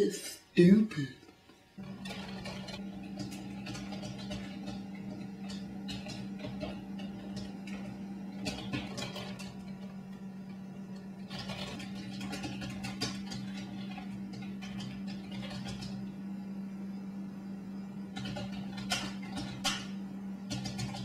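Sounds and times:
steady low hum: 0.0s - 21.0s
keyboard keys clicking: 1.8s - 10.2s, 11.0s - 16.0s, 18.1s - 21.0s.

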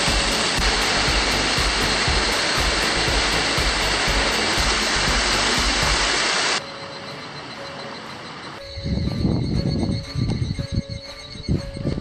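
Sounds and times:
mountain stream rushing: 0.0s - 6.6s.

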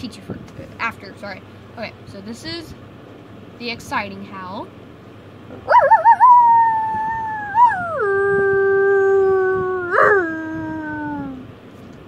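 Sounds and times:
person imitating wolf howl: 5.7s - 11.5s.

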